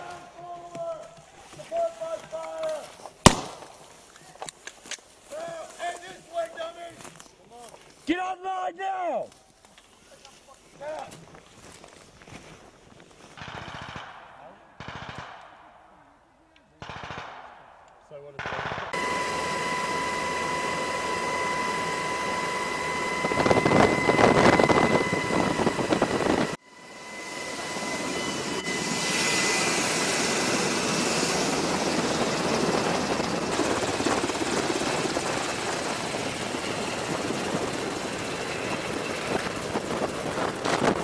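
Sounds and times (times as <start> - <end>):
helicopter engine whine: 18.9 - 41.0
helicopter rotor noise: 18.9 - 41.0.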